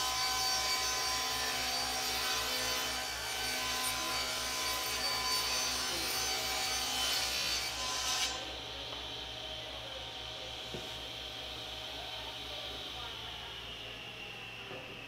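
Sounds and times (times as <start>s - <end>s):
tool working wood: 0.0s - 9.2s.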